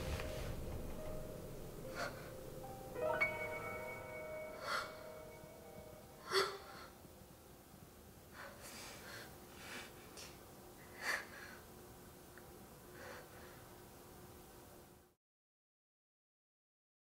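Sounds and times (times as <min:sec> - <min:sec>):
woman crying: 0:06.1 - 0:07.0.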